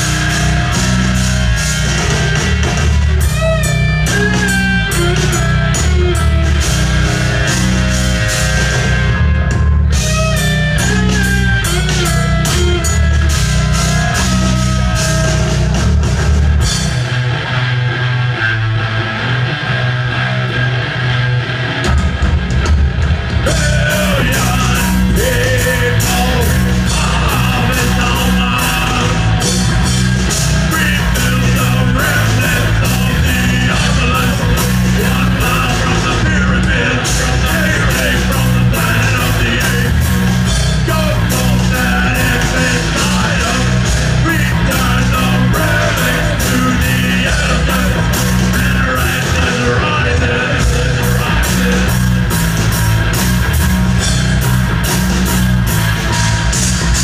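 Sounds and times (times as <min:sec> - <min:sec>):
drum kit and cymbals: 0:00.0 - 0:17.6, 0:21.8 - 0:57.0
bass guitar: 0:00.0 - 0:57.0
distorted electric guitar: 0:00.0 - 0:57.0
shouted vocals: 0:10.6 - 0:15.7, 0:23.4 - 0:40.2, 0:40.8 - 0:52.0.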